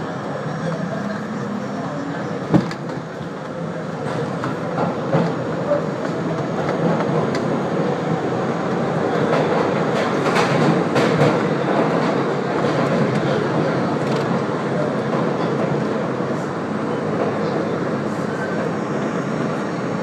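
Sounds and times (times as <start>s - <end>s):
subway train wheels rumbling: 0.0s - 20.0s.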